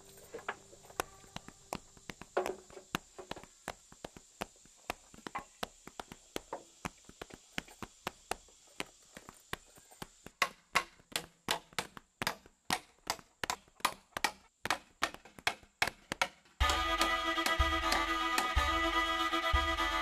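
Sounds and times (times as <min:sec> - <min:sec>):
hammer knocking nails into wood: 0:10.3 - 0:18.6.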